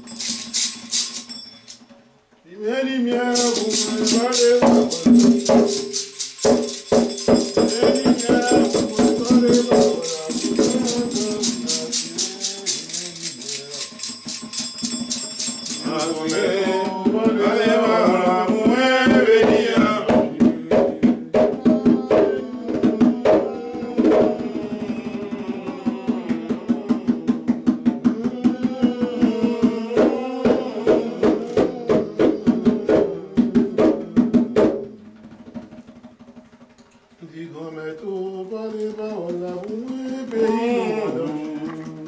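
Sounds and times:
rattle shaken: 0:00.0 - 0:01.8, 0:03.2 - 0:17.4
voices chanting: 0:02.6 - 0:34.2, 0:38.1 - 0:42.0
steady drumbeat: 0:03.1 - 0:37.1.

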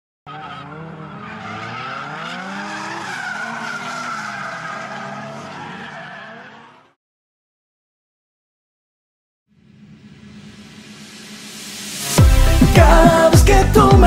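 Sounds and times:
tyres squealing: 0:00.3 - 0:06.8
car engine revving: 0:00.3 - 0:07.0.

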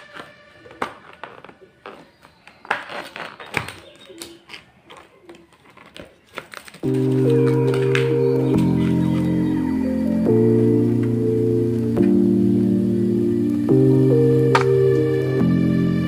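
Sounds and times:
plastic lid crackling and snapping: 0:00.0 - 0:08.1
loud background music: 0:06.9 - 0:16.0.

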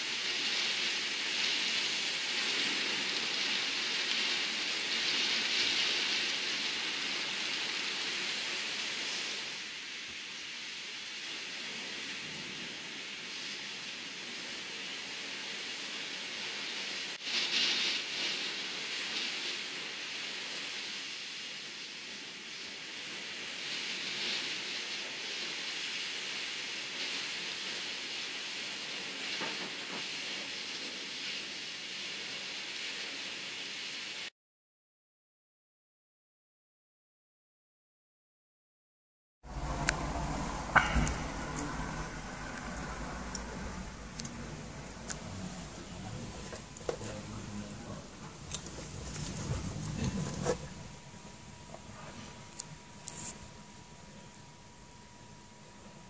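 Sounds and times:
heavy rain on window: 0:00.0 - 0:34.3, 0:39.4 - 0:56.0
gusting wind: 0:39.4 - 0:51.7.

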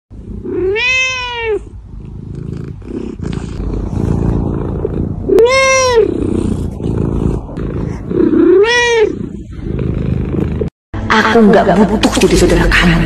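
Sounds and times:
cat meowing: 0:00.4 - 0:01.7, 0:05.3 - 0:06.2, 0:08.3 - 0:09.3
low rumbling noise: 0:01.7 - 0:11.1.

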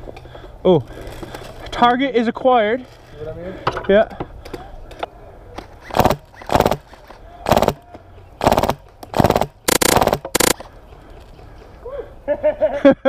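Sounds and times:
airsoft rifle rapid-fire bursts: 0:05.8 - 0:06.9, 0:07.5 - 0:07.8, 0:08.4 - 0:10.6.

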